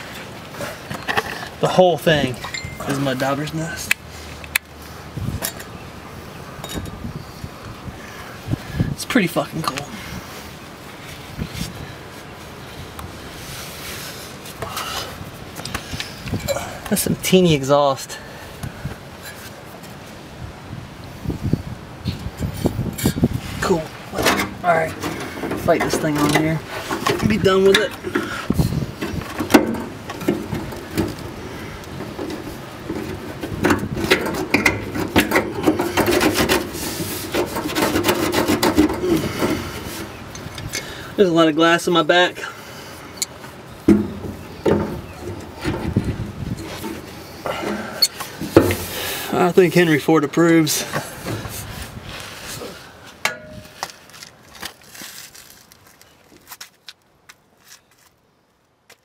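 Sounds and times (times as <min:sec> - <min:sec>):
rubbing and scraping of metal parts: 0:00.0 - 0:04.0, 0:19.1 - 0:20.1, 0:22.1 - 0:41.0, 0:43.1 - 0:56.8.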